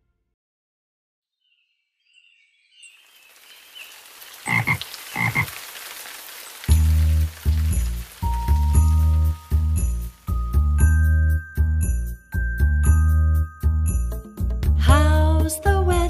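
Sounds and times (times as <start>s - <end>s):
soft rain patter: 2.8s - 11.4s
frog croaking: 4.3s - 5.8s
children's song music: 7.5s - 16.0s.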